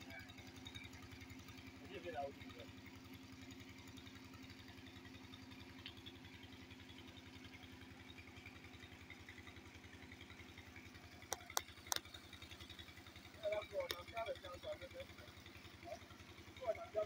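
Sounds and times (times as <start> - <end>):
small engine running: 0.0 - 17.0
sharp clicks: 11.3 - 12.2.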